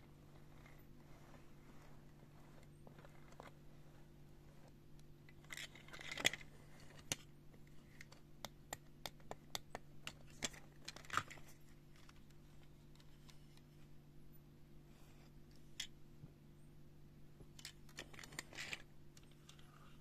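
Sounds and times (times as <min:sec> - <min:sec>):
faint low hum: 0:00.0 - 0:20.0
metal toy clicking and scraping: 0:17.6 - 0:19.7.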